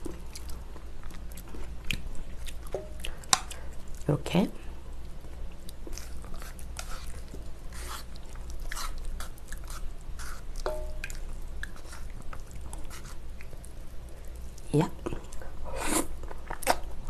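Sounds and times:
chewing: 0:00.0 - 0:04.1, 0:05.0 - 0:17.0
wet sticky noodle squishing: 0:00.0 - 0:17.0.

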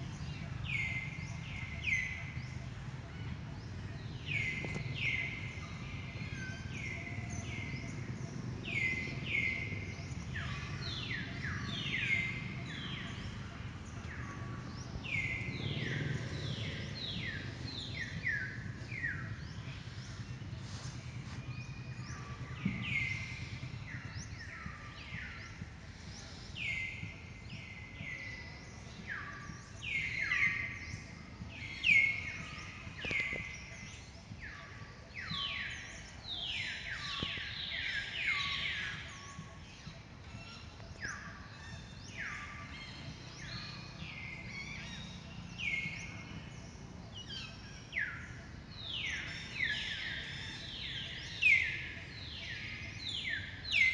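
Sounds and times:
low steady rumble: 0:00.0 - 0:40.0
birds chirping: 0:00.0 - 0:53.9.

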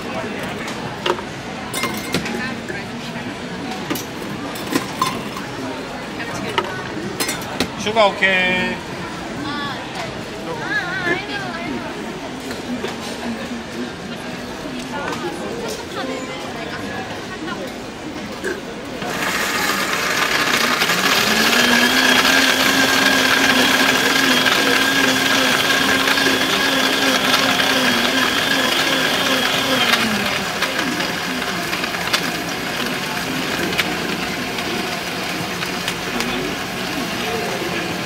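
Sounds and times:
blender motor whining: 0:19.0 - 0:38.0.

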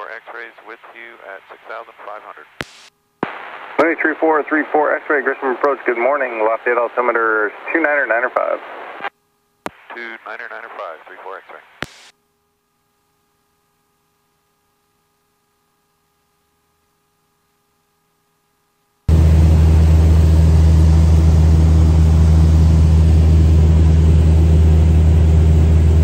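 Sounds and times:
faint steady hum: 0:00.0 - 0:19.4
aircraft engine and propeller drone: 0:19.1 - 0:26.0.

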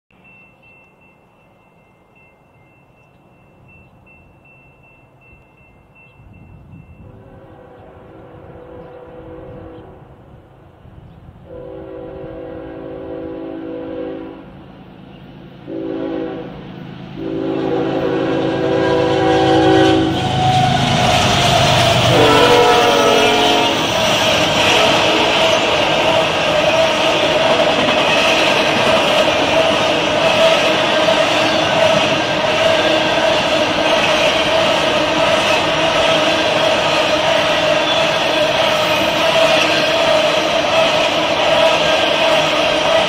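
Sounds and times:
engine and rail rumble: 0:00.1 - 0:43.0
locomotive horn blasts: 0:07.0 - 0:10.0, 0:11.5 - 0:14.6, 0:15.7 - 0:16.6, 0:17.2 - 0:25.6.

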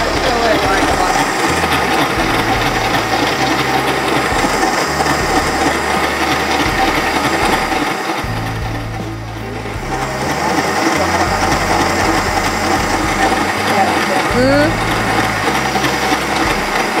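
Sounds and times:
stand mixer whirring: 0:00.0 - 0:17.0.

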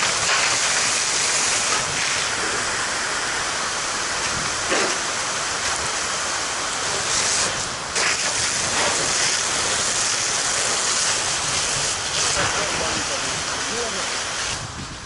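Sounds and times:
hose nozzle spraying water: 0:00.0 - 0:02.8, 0:07.0 - 0:14.7
water hissing on fire: 0:00.0 - 0:15.0.

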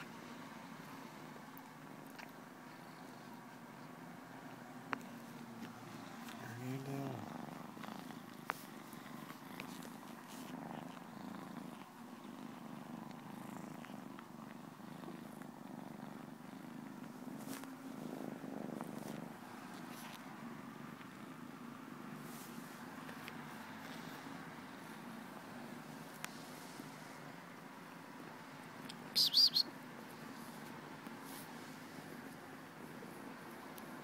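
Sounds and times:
cat purring: 0:00.0 - 0:29.1, 0:30.0 - 0:34.0.

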